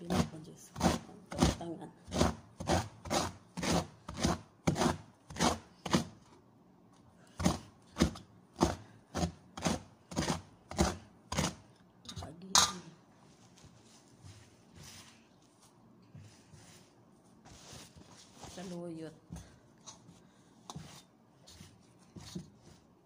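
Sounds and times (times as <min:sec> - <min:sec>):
knife chopping leaves: 0:00.0 - 0:06.2, 0:07.3 - 0:11.6.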